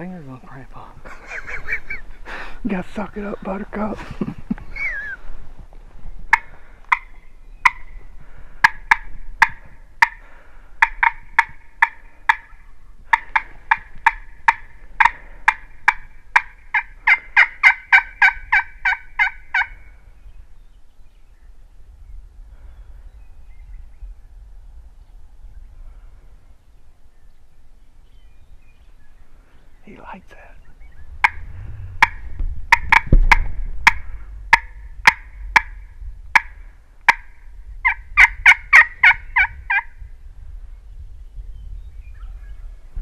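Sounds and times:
turkey call yelps: 6.3 - 7.9, 10.8 - 19.9, 32.0 - 35.8, 36.4 - 39.9.

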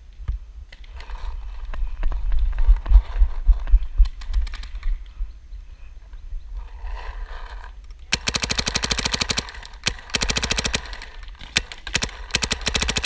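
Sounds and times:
paintball marker firing: 8.2 - 13.0.

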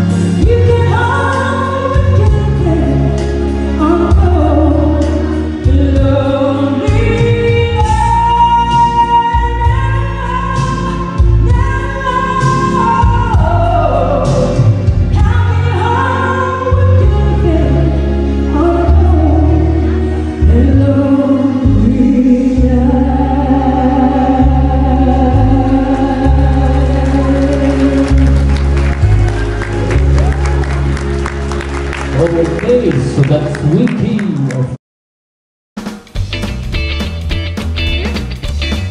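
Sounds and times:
person singing into microphone: 0.0 - 28.4
amplified musical accompaniment: 0.0 - 34.6, 35.8 - 38.9.

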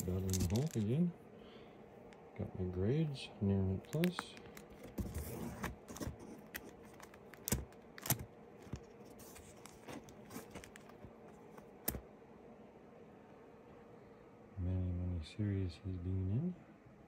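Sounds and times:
comic books rustling: 0.0 - 1.1, 3.7 - 12.0.

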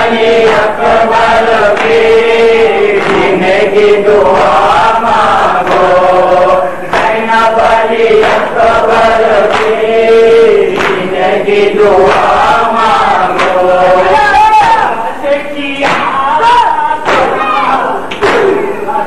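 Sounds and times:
men chanting a lament: 0.0 - 19.0
sharp rhythmic strokes: 0.0 - 19.0.

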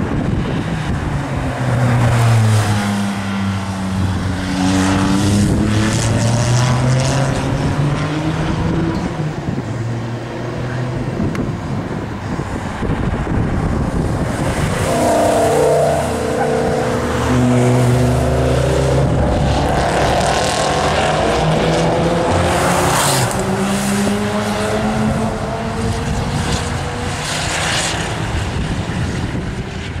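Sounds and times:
car engine passing by: 12.2 - 29.2.

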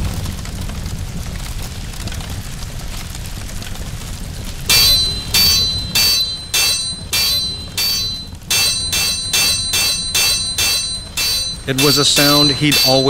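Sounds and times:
hammer striking metal on anvil: 4.7 - 13.0.

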